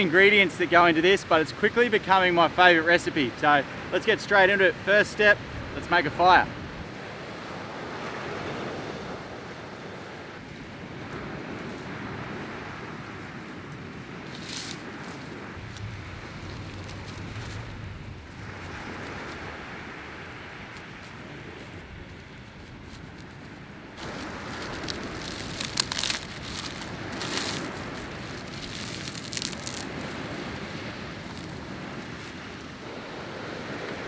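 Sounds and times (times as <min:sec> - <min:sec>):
dry palm fronds crackling: 0:10.5 - 0:32.8
sharp crunches: 0:24.0 - 0:30.5.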